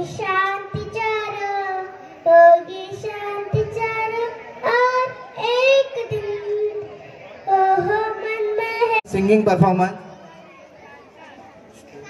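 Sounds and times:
girl singing into microphone: 0:00.0 - 0:09.0.

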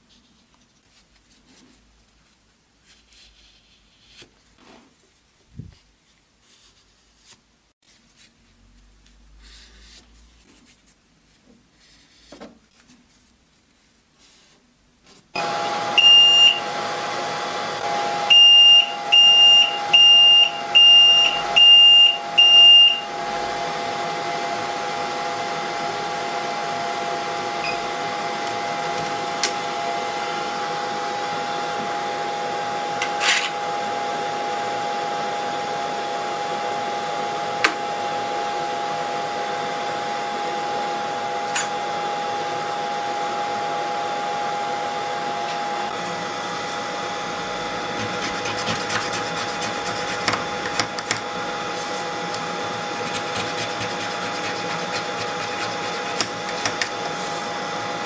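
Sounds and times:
blower and fans humming: 0:15.3 - 0:58.0.

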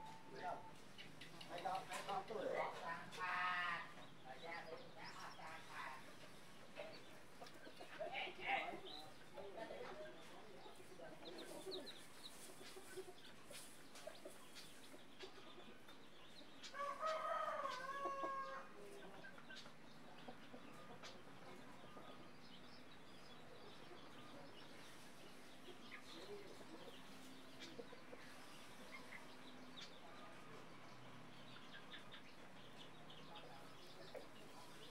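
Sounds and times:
chicks peeping: 0:00.0 - 0:34.9
hen clucking: 0:00.0 - 0:34.9
drawn-out chicken call: 0:16.6 - 0:18.8.

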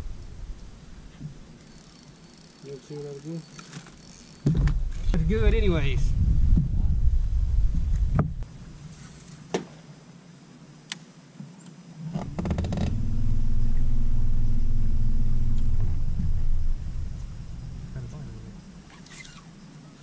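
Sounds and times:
electric trolling motor humming: 0:12.2 - 0:20.0.

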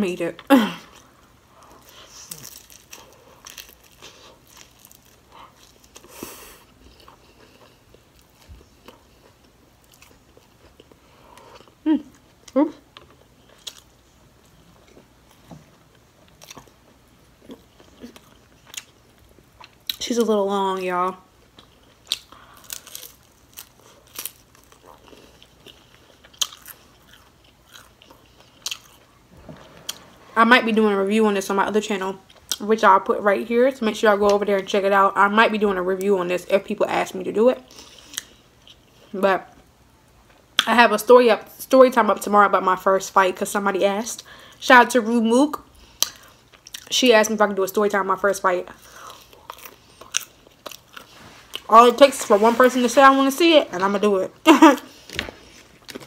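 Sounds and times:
crunching fried food chewing: 0:01.0 - 0:15.1, 0:15.8 - 0:20.0, 0:21.3 - 0:30.0, 0:45.8 - 0:46.9, 0:48.8 - 0:51.7, 0:54.8 - 0:56.0
crunchy bites and chewing: 0:01.8 - 0:06.1, 0:21.5 - 0:29.1, 0:48.9 - 0:51.7.

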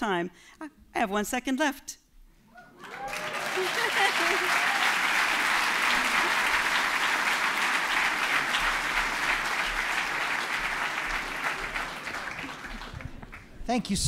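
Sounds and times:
large audience applauding: 0:02.7 - 0:13.6.

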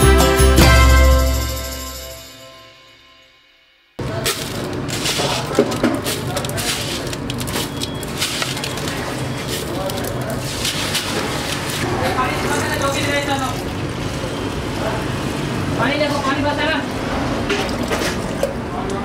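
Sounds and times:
intro music: 0:00.0 - 0:04.0.

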